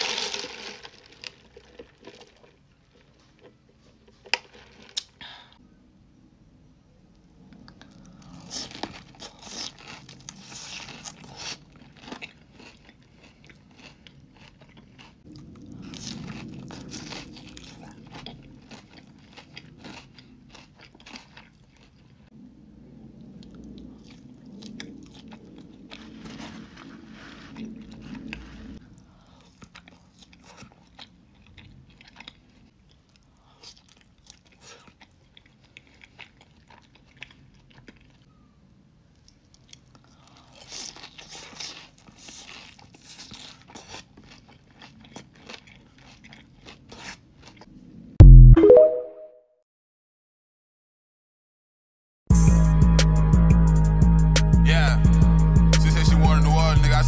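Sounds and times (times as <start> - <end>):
crunching and chewing: 0.0 - 5.3, 7.4 - 22.3, 23.1 - 48.1.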